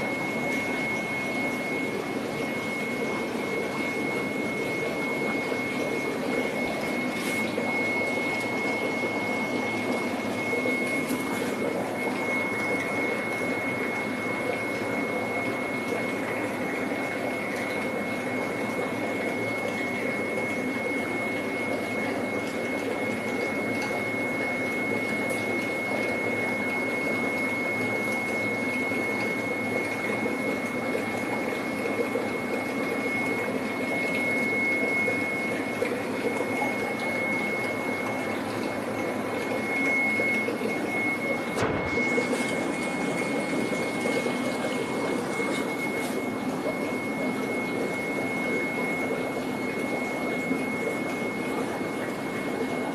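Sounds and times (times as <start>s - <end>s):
pumped water rushing: 0.0s - 52.9s
thin high whine: 34.1s - 52.1s.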